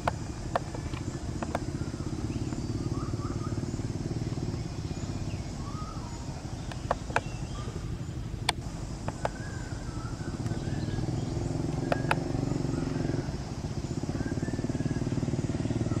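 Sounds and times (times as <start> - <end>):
sharp clicks: 0.0 - 1.8, 6.6 - 7.5, 8.4 - 9.8, 11.6 - 12.5
motor engine droning: 0.0 - 16.0.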